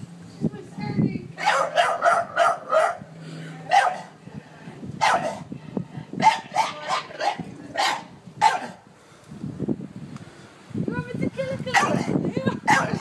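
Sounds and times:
dog barking: 0:01.4 - 0:03.0, 0:03.7 - 0:04.2, 0:05.0 - 0:05.5, 0:06.2 - 0:08.8, 0:11.7 - 0:13.0.

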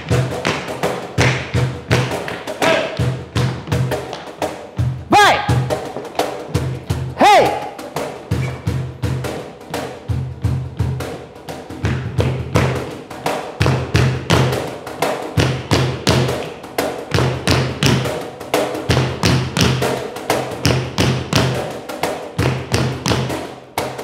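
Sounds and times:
tap shoes on hard floor: 0:00.0 - 0:04.6, 0:05.7 - 0:06.8, 0:11.8 - 0:12.9, 0:15.4 - 0:18.1
live percussion: 0:00.0 - 0:24.0.

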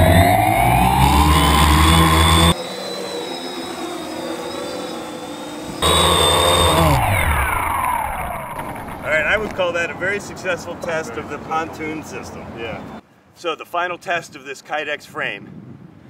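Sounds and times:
drone motors whining: 0:00.0 - 0:09.6.

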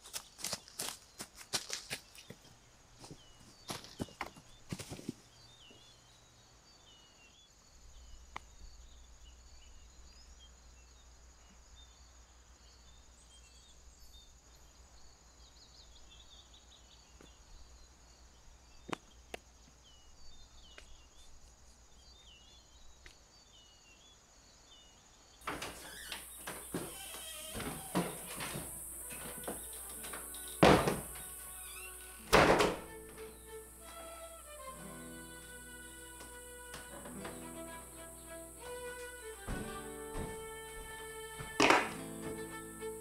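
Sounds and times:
faint birds chirping: 0:00.0 - 0:43.0
steady high tone: 0:28.3 - 0:43.0.

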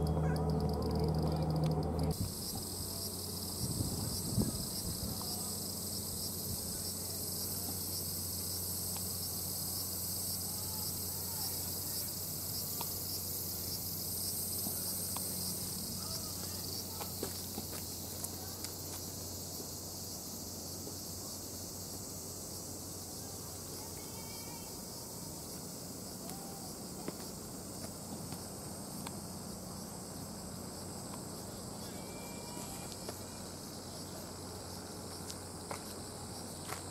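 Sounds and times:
low hum: 0:00.0 - 0:06.8
cicadas chorus: 0:00.0 - 0:36.9.

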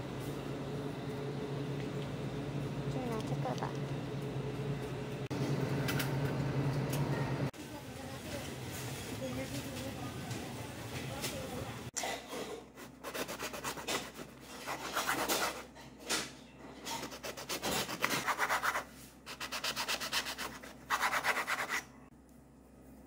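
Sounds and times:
knife sawing through bread: 0:12.8 - 0:15.7, 0:17.0 - 0:21.9.

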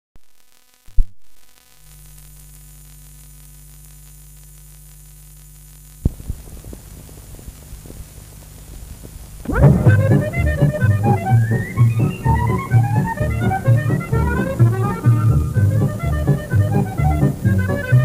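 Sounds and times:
crackling clicks: 0:00.2 - 0:15.1
recording hum and hiss: 0:00.2 - 0:18.0.

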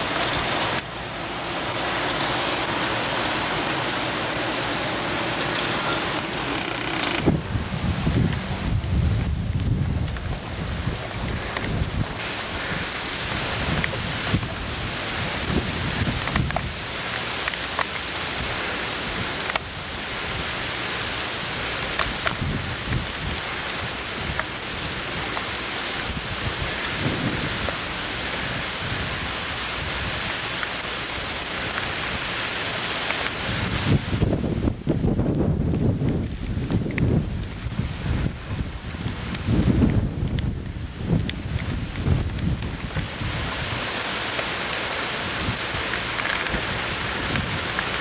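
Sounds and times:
heavy rain: 0:00.0 - 0:48.0
wind: 0:00.0 - 0:48.0.

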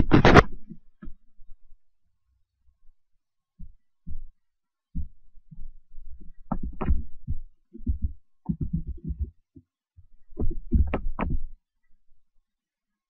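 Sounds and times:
muffled low thumps and knocks: 0:03.6 - 0:04.3, 0:05.0 - 0:09.4, 0:10.3 - 0:11.6.

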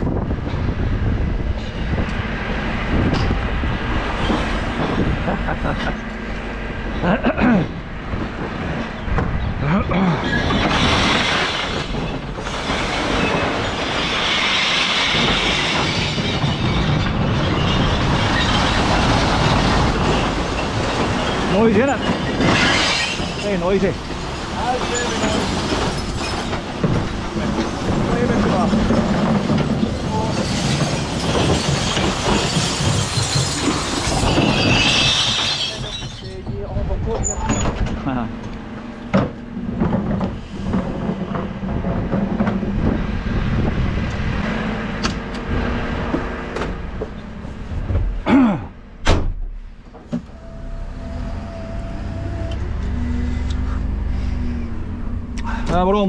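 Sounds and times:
wheelie bins rumbling over tarmac: 0:00.0 - 0:56.0
harsh high scraping: 0:10.2 - 0:37.7
glass bottles clattering: 0:14.5 - 0:27.7, 0:28.5 - 0:36.6
glass crashing into truck: 0:14.6 - 0:24.0, 0:28.1 - 0:36.6.

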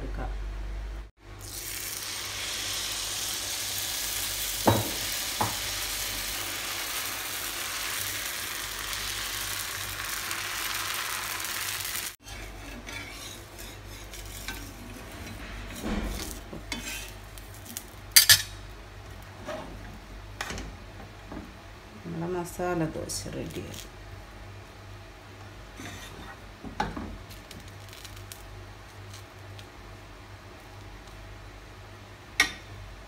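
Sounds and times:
batter sizzling on hot pan: 0:01.4 - 0:15.2, 0:15.8 - 0:18.4, 0:27.2 - 0:31.8.

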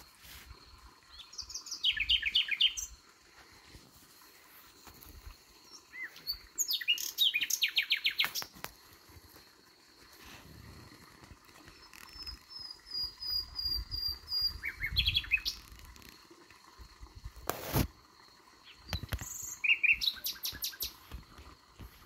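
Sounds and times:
nightingale singing: 0:01.1 - 0:03.0, 0:05.6 - 0:08.5, 0:11.7 - 0:15.8, 0:18.6 - 0:21.0.

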